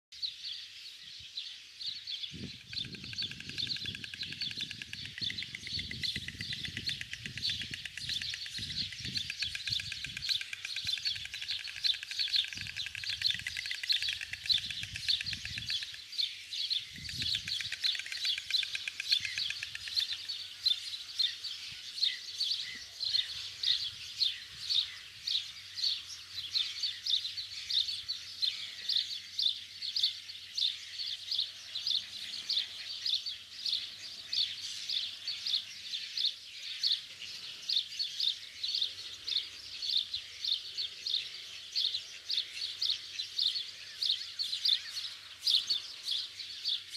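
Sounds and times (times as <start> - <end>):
small birds chirping: 0.2 - 46.9
storks bill-clattering: 2.8 - 16.0.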